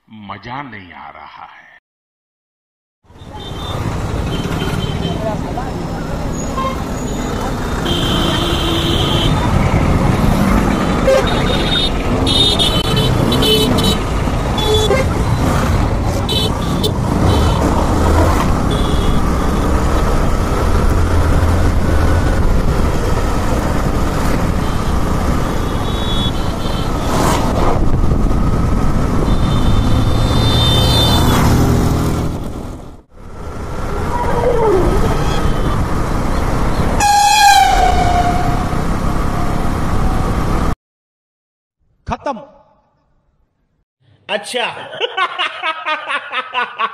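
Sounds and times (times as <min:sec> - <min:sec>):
road noise: 0:03.0 - 0:40.8
vehicle horns honking: 0:03.2 - 0:05.3, 0:06.3 - 0:09.6, 0:10.9 - 0:15.6, 0:16.2 - 0:17.8, 0:18.6 - 0:19.8, 0:24.4 - 0:27.2, 0:29.2 - 0:31.6, 0:36.7 - 0:38.8
motorcycle engine: 0:03.4 - 0:40.2.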